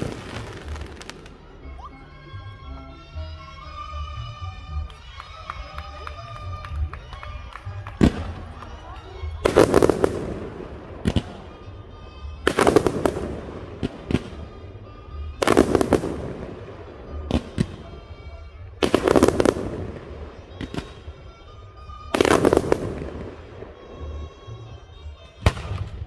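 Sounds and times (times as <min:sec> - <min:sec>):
fireworks booms and crackle: 0:00.0 - 0:01.4, 0:07.8 - 0:08.7, 0:09.4 - 0:11.6, 0:12.4 - 0:18.1, 0:18.8 - 0:21.4, 0:22.1 - 0:24.1, 0:25.4 - 0:26.0
sharp fireworks bangs: 0:00.0 - 0:01.4, 0:09.4 - 0:18.1, 0:18.8 - 0:24.4, 0:25.4 - 0:26.0.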